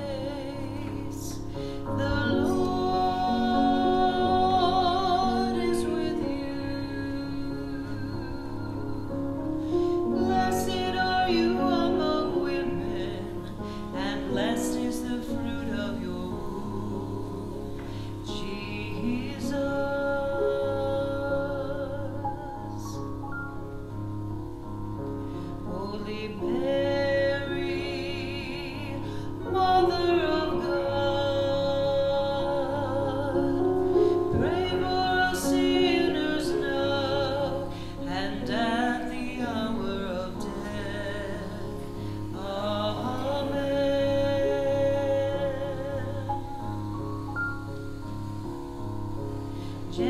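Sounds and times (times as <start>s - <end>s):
person singing a hymn with vibrato: 0.0s - 23.7s, 25.3s - 50.0s
instrumental accompaniment: 40.0s - 50.0s.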